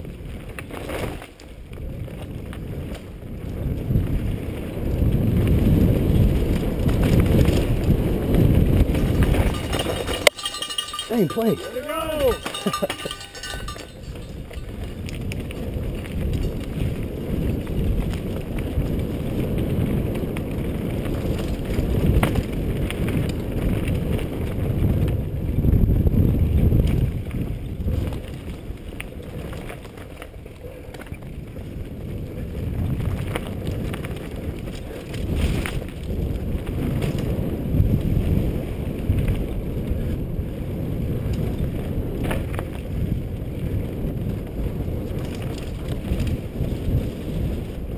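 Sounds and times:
bike rattles and clicks: 0.0s - 47.9s
wind on microphone: 0.0s - 47.9s
tyres rumbling on dirt: 4.8s - 25.0s.

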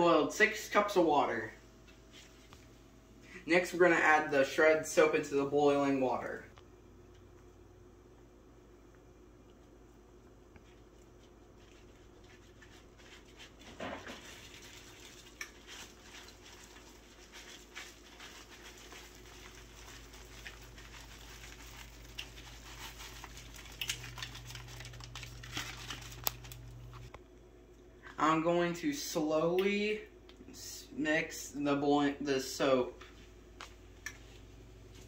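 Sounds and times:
low steady hum: 0.0s - 35.0s
water boiling: 3.5s - 27.2s
soap shreds pattering into water: 10.8s - 26.7s.

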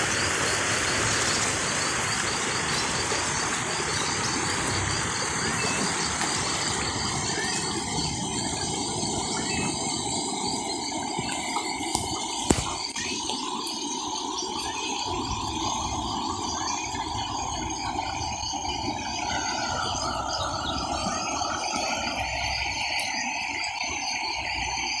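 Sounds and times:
floodwater rushing: 0.0s - 13.6s
frogs and insects chorus: 0.0s - 25.0s.

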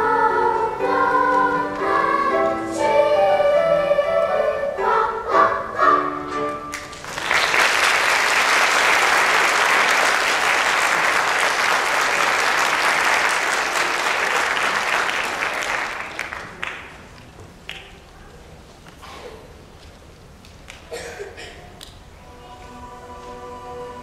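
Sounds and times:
audience applauding: 6.7s - 17.1s.

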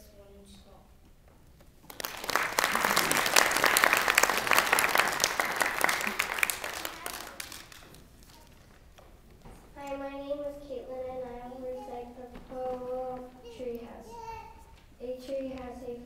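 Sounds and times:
audience applauding: 1.8s - 8.7s.

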